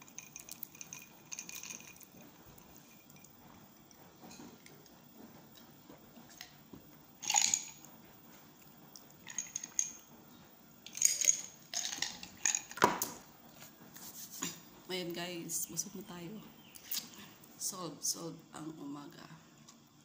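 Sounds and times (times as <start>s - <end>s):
ice cubes clinking in glass: 0.0s - 3.3s, 7.2s - 7.8s, 9.2s - 10.0s, 10.9s - 13.2s.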